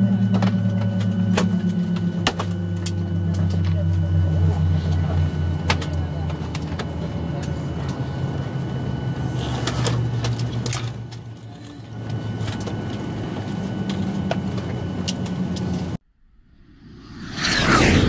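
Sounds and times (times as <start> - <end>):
aircraft cabin drone: 0.0 - 18.0
whoosh: 16.2 - 18.0.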